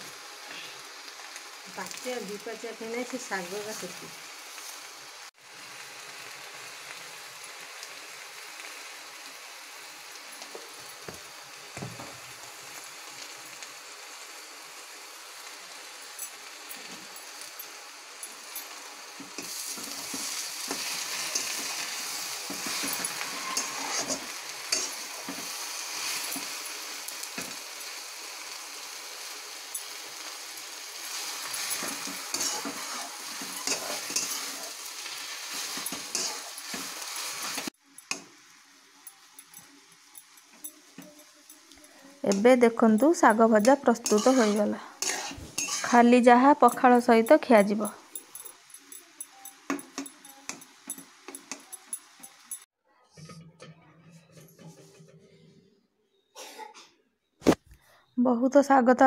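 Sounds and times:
greens sizzling in a wok: 0:00.0 - 0:52.7
metal spatula scraping a pan: 0:19.3 - 0:27.6, 0:31.0 - 0:38.2, 0:42.3 - 0:47.0.

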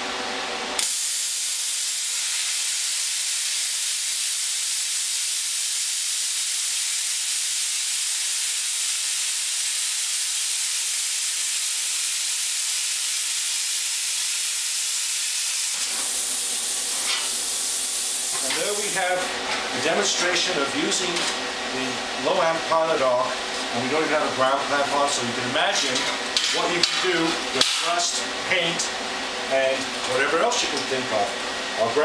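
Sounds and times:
plasma cutter hissing: 0:00.8 - 0:19.3.

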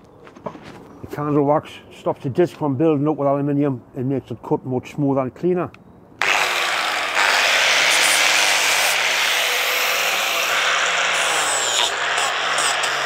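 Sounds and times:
angle grinder running: 0:06.2 - 0:13.0.

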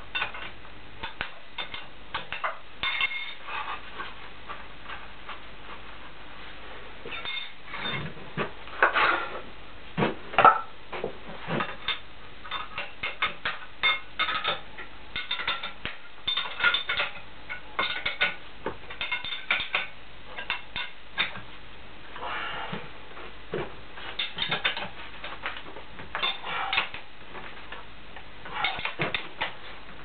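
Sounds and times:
metal tools clinking and knocking: 0:11.6 - 0:14.6, 0:15.2 - 0:21.4.

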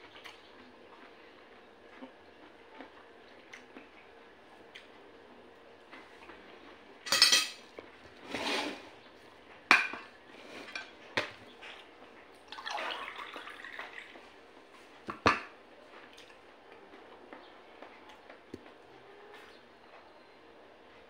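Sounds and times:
cutlery clinking against a dish: 0:07.1 - 0:07.7.

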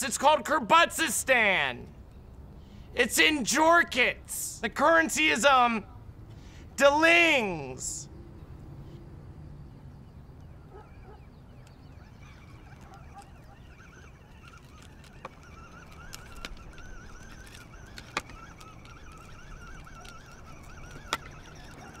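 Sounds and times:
low rumble of wind: 0:01.3 - 0:22.0
thin wavering whine: 0:08.0 - 0:22.0
sharp clicks: 0:12.4 - 0:22.0.

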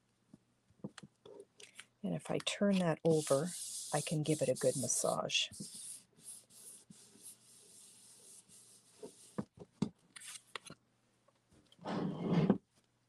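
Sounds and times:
hands rubbing paper: 0:02.3 - 0:09.4.

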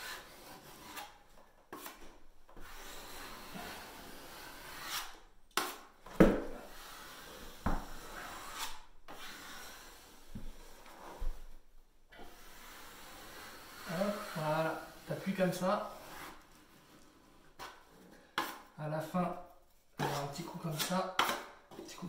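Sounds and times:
spatula scraping plasterboard: 0:00.0 - 0:22.0.

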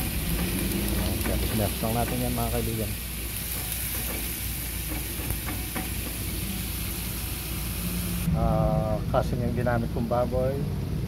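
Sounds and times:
meat sizzling in a pan: 0:00.0 - 0:08.3.

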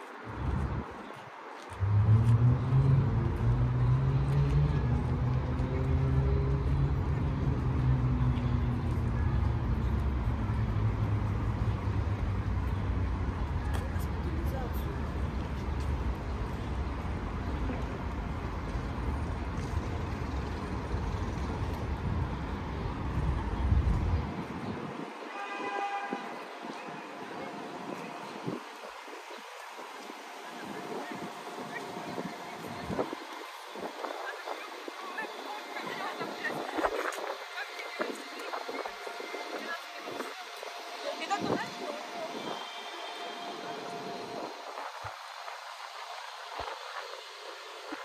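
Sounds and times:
vehicle engine rumbling: 0:01.8 - 0:25.1.

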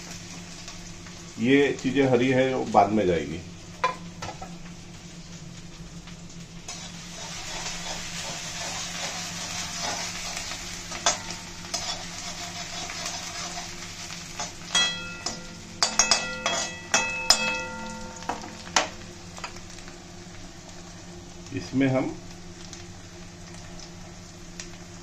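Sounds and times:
vegetables sizzling in hot oil: 0:00.0 - 0:25.0
metal spatula clanking on pan: 0:10.9 - 0:12.0, 0:14.4 - 0:18.9.

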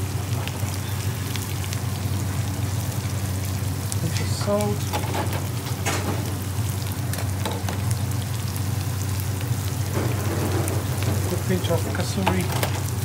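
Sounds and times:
onions sizzling in a frying pan: 0:00.0 - 0:13.0.

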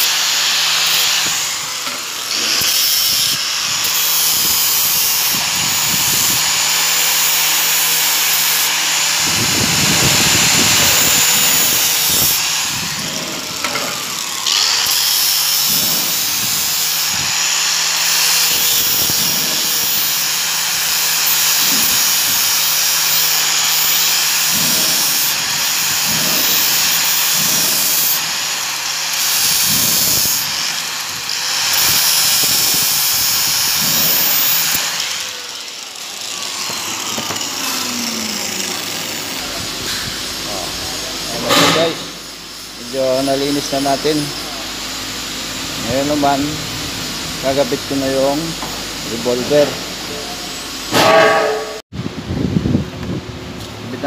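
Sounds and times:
metal grinding hiss: 0:00.0 - 0:51.8
motor hum: 0:29.4 - 0:41.6.

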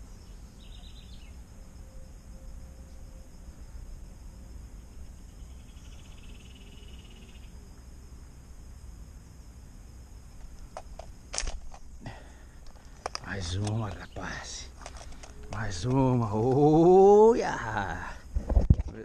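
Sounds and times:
high insect hum: 0:00.0 - 0:19.0
sharp clicks: 0:12.6 - 0:16.6.

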